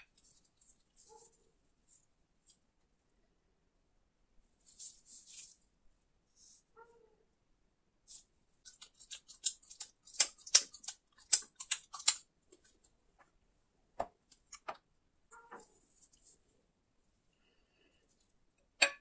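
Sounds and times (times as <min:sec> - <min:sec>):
chewing chocolate: 0:08.7 - 0:12.7.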